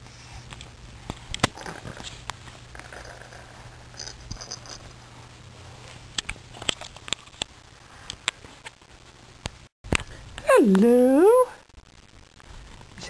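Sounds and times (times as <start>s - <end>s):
high tinkling: 3.9s - 4.9s.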